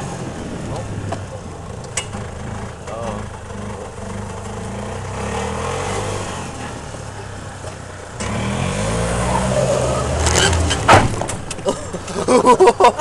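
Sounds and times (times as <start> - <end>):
golf cart engine running: 0.0 - 8.4.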